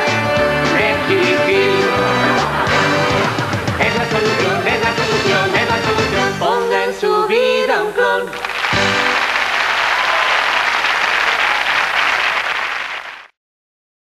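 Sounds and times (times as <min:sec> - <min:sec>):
pop song with band: 0:00.0 - 0:09.0
audience applauding: 0:02.2 - 0:05.4, 0:08.3 - 0:13.4.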